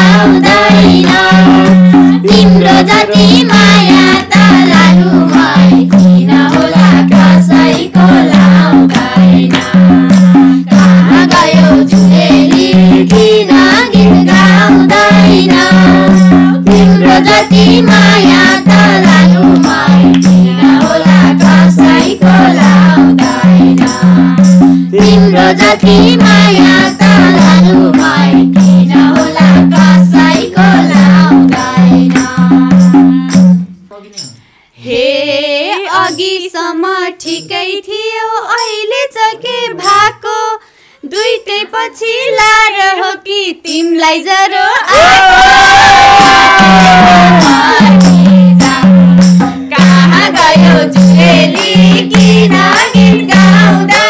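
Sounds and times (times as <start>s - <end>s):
folk singing: 0.0s - 33.4s, 34.8s - 54.0s
hand drum rhythm: 0.0s - 34.4s, 35.7s - 36.5s, 44.9s - 54.0s
hand clapping: 45.0s - 50.7s, 51.5s - 54.0s.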